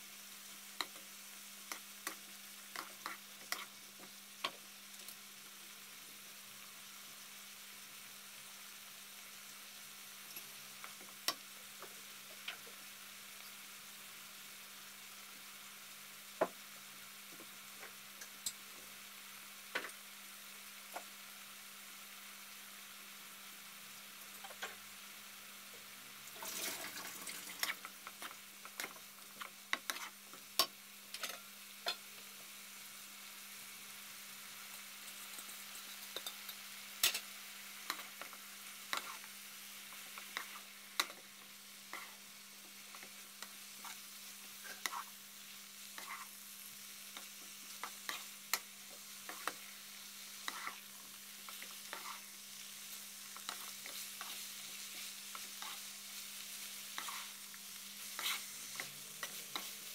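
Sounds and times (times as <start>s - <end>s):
vegetables sizzling in a wok: 0.0s - 59.9s
wooden spatula scraping pan: 58.1s - 59.8s.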